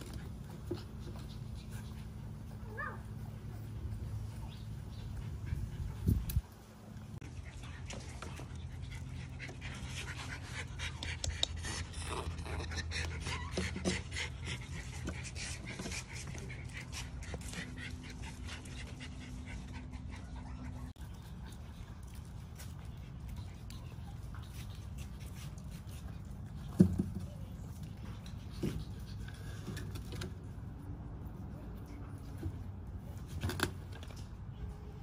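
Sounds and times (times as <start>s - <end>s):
puppy panting: 0.0s - 26.8s.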